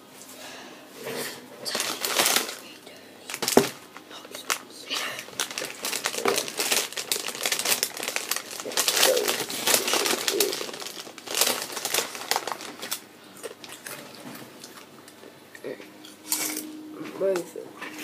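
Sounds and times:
crisp packet crinkling: 0:01.6 - 0:14.4.

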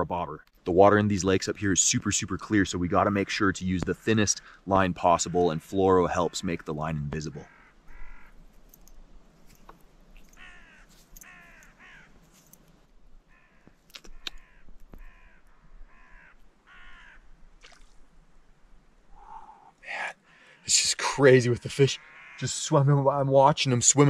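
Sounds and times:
crow-like bird cawing: 0:07.4 - 0:08.4, 0:10.3 - 0:12.2, 0:13.3 - 0:17.4, 0:19.1 - 0:20.7, 0:22.0 - 0:22.5.

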